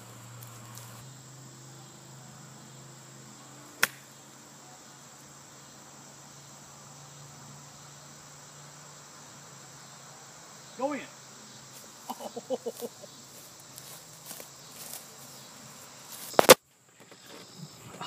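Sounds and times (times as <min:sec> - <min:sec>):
insects droning: 0:00.0 - 0:18.0
golf club striking ball: 0:03.8 - 0:04.1.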